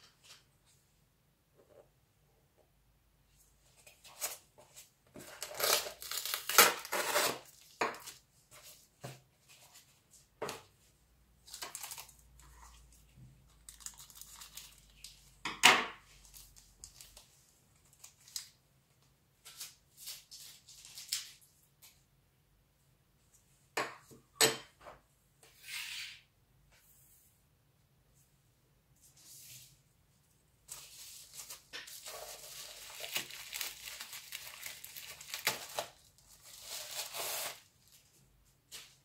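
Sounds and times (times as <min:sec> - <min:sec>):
cardboard packaging tearing: 0:05.2 - 0:07.6, 0:30.8 - 0:37.7.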